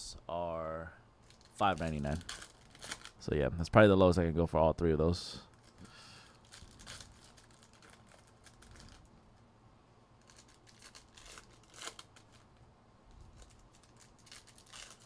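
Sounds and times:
foil wrappers crinkling and tearing: 1.2 - 3.2, 5.5 - 9.1, 10.2 - 12.6, 13.2 - 15.0.

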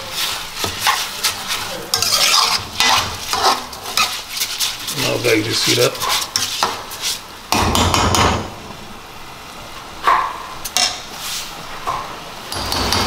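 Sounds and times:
spoon scraping rice in pan: 0.0 - 7.2.

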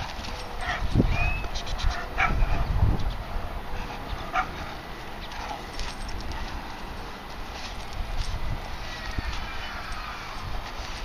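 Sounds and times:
puppy barking: 1.9 - 2.6, 4.3 - 4.6.

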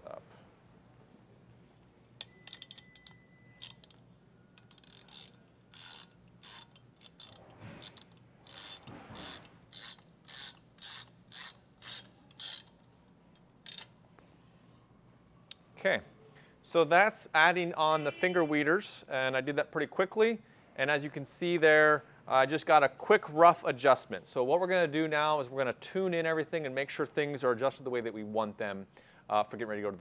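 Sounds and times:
ratcheting wrench clicking: 2.2 - 4.0, 4.6 - 12.8, 13.6 - 13.9.

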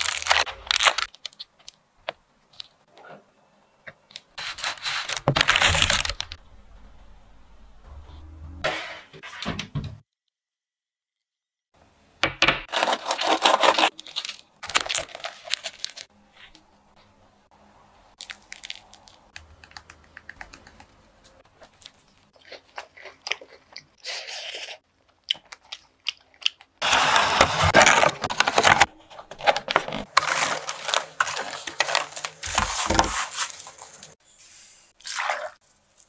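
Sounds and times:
crunching of pastry: 12.7 - 16.2, 18.1 - 20.6, 21.4 - 34.2
pastry clicks and rustles: 18.2 - 22.4.

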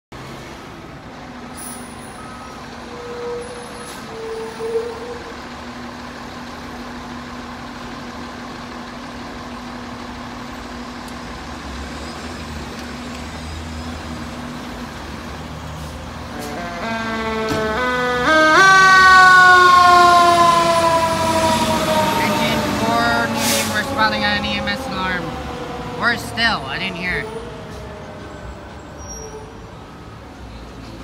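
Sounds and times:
fire engine diesel rumble: 0.2 - 31.0
siren rising: 16.5 - 29.5.

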